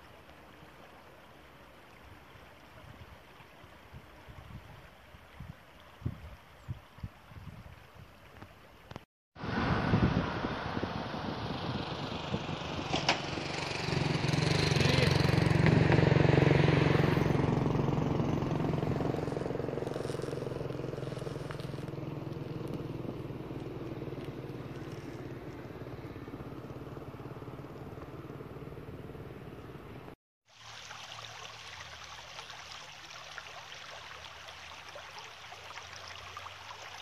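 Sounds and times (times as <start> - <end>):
vehicle driving past: 9.4 - 30.2.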